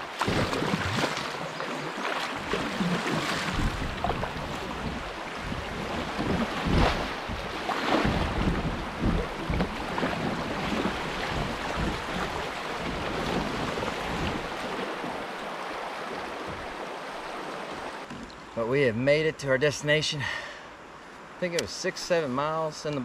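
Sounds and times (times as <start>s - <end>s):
water splashing around kayak: 0.0s - 18.5s
wind buffeting microphone: 2.4s - 15.2s.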